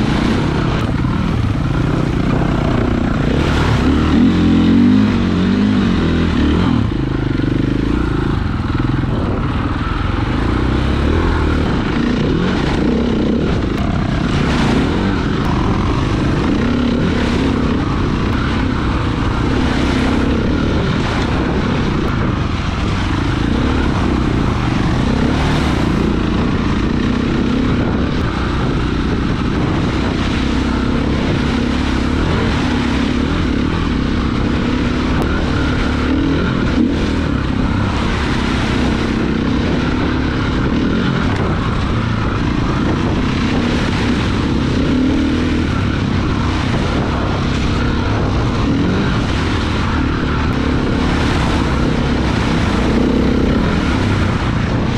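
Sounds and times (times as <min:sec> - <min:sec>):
dirt bike engine running: 0:00.0 - 0:54.9.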